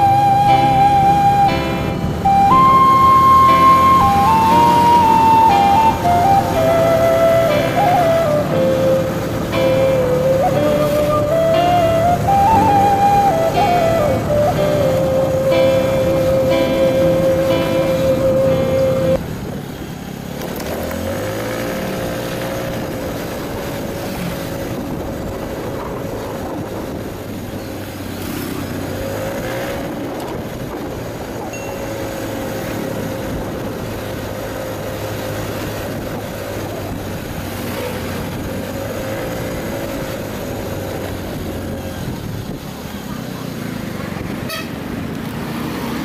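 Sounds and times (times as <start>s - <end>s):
background music: 0.0s - 19.2s.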